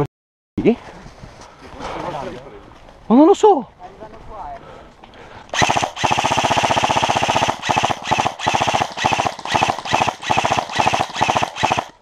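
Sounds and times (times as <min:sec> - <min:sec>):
airsoft rifle firing bursts: 0:05.6 - 0:12.0.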